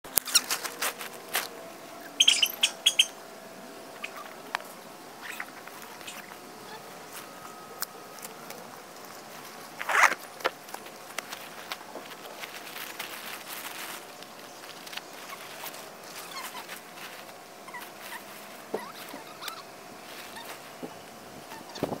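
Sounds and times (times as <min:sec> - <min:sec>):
fabric rustling: 0:08.4 - 0:22.0.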